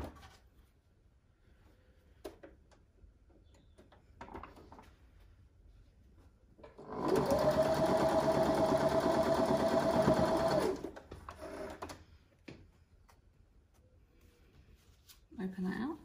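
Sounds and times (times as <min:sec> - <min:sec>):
sewing machine running: 0:06.8 - 0:11.9
fabric handling noise: 0:12.1 - 0:16.0.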